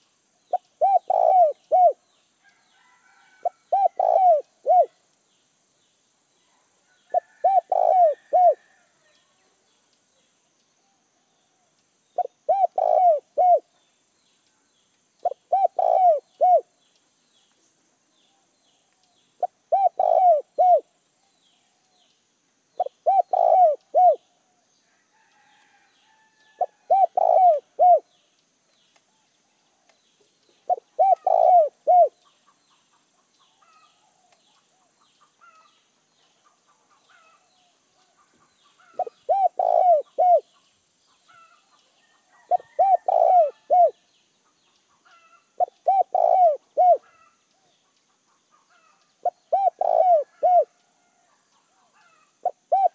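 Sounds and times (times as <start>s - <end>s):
dove cooing: 0.5s - 2.0s, 3.4s - 5.0s, 7.1s - 8.8s, 12.2s - 13.7s, 15.2s - 16.7s, 19.4s - 20.9s, 22.8s - 24.2s, 26.6s - 28.1s, 30.6s - 32.2s, 38.8s - 40.5s, 42.4s - 44.0s, 45.0s - 47.3s, 48.7s - 50.7s, 51.8s - 52.9s.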